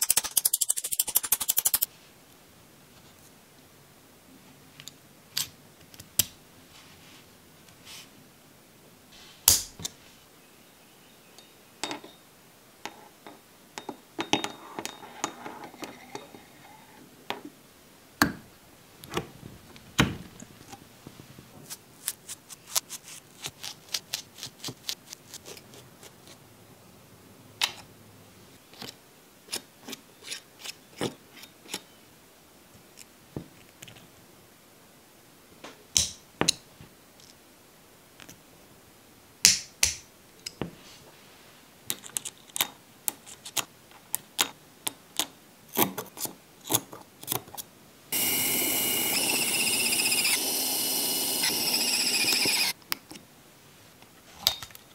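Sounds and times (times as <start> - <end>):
metal parts clicking on mat: 0.0 - 1.9
soft rustling scrape: 6.7 - 8.2, 40.7 - 41.7.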